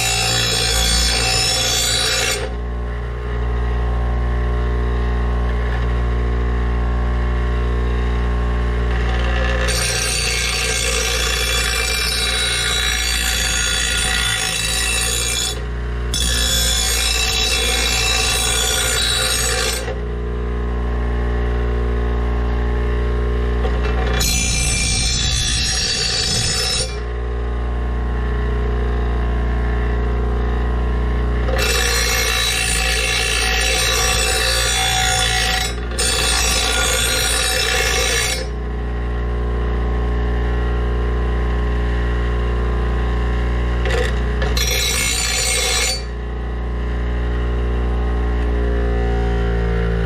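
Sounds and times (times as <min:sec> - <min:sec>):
metal blade grinding rasp: 0:00.0 - 0:02.6, 0:08.9 - 0:20.0, 0:23.6 - 0:27.1, 0:31.5 - 0:38.6, 0:43.8 - 0:46.2
bench grinder motor humming: 0:00.0 - 0:50.0.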